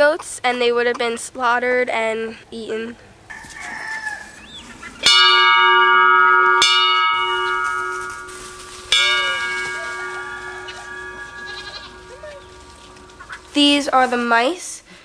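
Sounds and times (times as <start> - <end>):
large brass bell ringing: 5.0 - 14.0.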